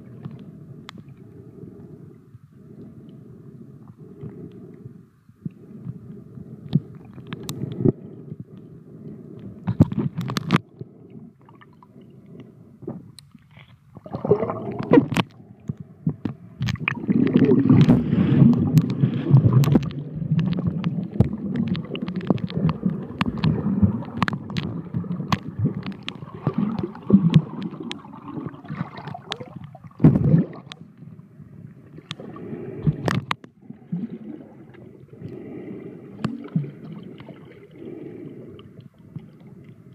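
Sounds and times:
underwater water rushing: 0:13.9 - 0:15.5, 0:16.3 - 0:39.9.

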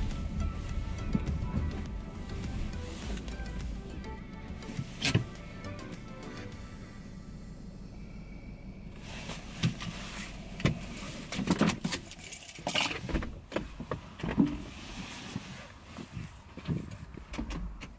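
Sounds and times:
car door opening: 0:00.0 - 0:06.5, 0:09.1 - 0:14.8
keys jangling: 0:10.9 - 0:13.0.

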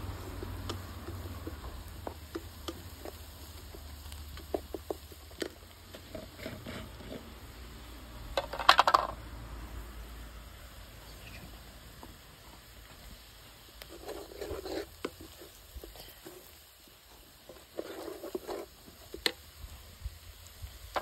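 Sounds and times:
spatula stirring in metal pot: 0:00.0 - 0:07.4, 0:13.7 - 0:19.4.

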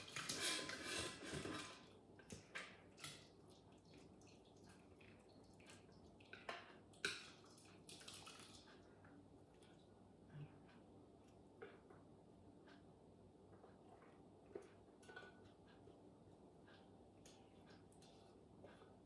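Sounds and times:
spatula scraping metal bowl: 0:00.0 - 0:01.8.

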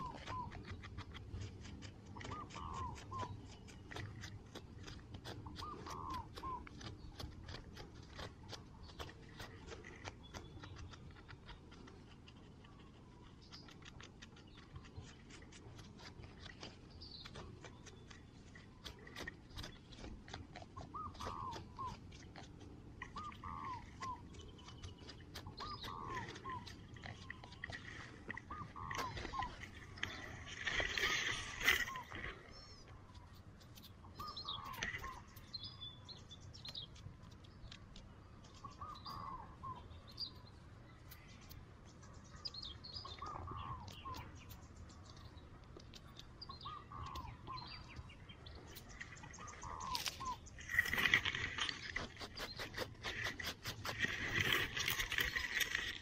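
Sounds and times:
fingers scratching gritty soil: 0:00.0 - 0:32.4, 0:49.7 - 0:56.0
short hooked animal calls: 0:02.2 - 0:03.4, 0:05.4 - 0:06.8, 0:20.8 - 0:22.1, 0:23.0 - 0:24.3, 0:25.4 - 0:32.7.

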